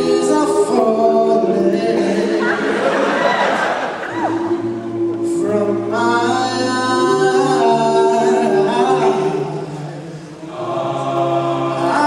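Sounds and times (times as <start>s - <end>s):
male a cappella group singing: 0.0s - 3.4s, 4.2s - 12.0s.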